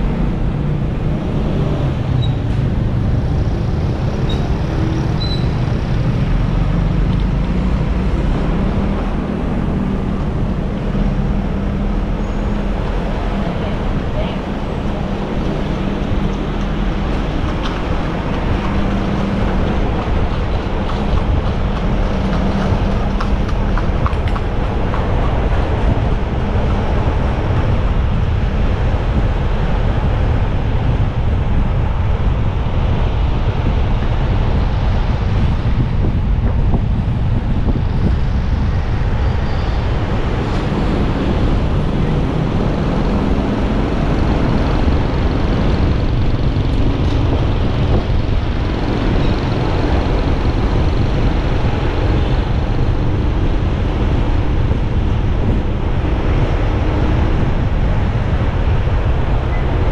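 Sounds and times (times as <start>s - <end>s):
road noise: 0.0s - 59.9s
wind rushing on microphone: 0.0s - 59.9s.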